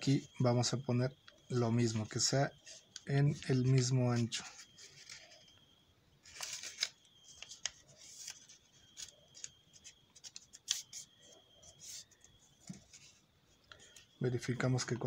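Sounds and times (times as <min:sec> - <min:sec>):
paper rustling and crackling: 0:06.2 - 0:13.2.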